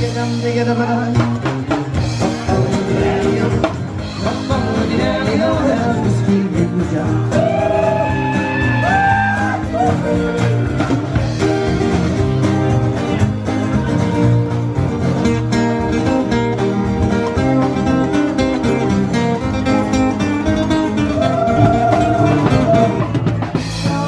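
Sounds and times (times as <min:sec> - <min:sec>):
man singing lead vocals: 0:00.0 - 0:08.8, 0:23.6 - 0:24.0
drum kit: 0:00.0 - 0:24.0
strummed acoustic guitars: 0:00.0 - 0:24.0.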